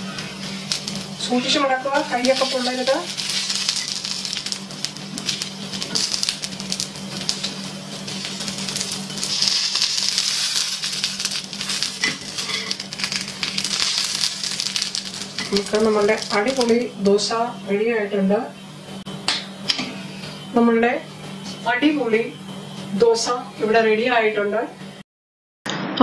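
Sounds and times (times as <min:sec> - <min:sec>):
batter sizzling on hot pan: 0:00.0 - 0:17.3
metal spatula scraping pan: 0:11.7 - 0:13.2.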